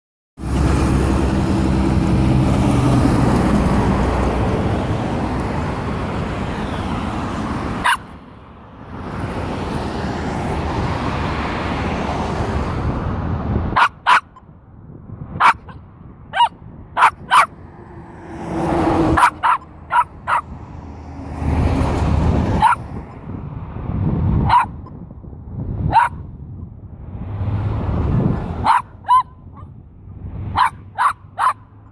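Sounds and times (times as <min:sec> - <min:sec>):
dog barking: 0:07.8 - 0:08.1, 0:13.8 - 0:14.4, 0:15.4 - 0:17.5, 0:19.1 - 0:20.5, 0:22.6 - 0:22.8, 0:24.5 - 0:24.8, 0:25.9 - 0:26.2, 0:28.6 - 0:29.7, 0:30.5 - 0:31.7.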